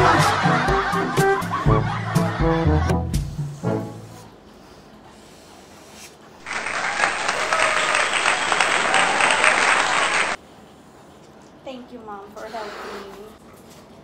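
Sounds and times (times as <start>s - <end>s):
crowd clapping: 6.4s - 10.4s.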